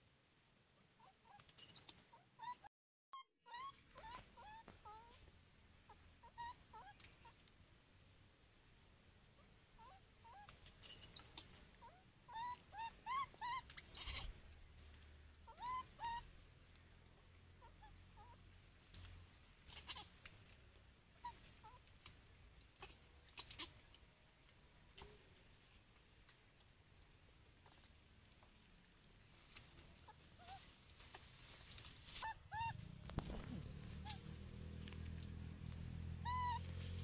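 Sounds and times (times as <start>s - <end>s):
baby monkey crying: 1.0s - 5.1s, 5.9s - 7.0s, 11.2s - 14.4s, 15.5s - 16.3s, 19.7s - 20.2s, 23.4s - 23.7s, 32.2s - 34.3s, 36.2s - 36.8s.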